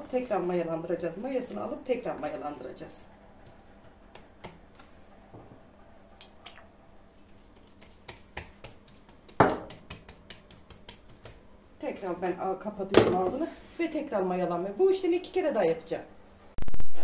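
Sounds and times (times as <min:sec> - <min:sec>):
hands slapping dough: 0:03.4 - 0:04.9, 0:07.4 - 0:11.5.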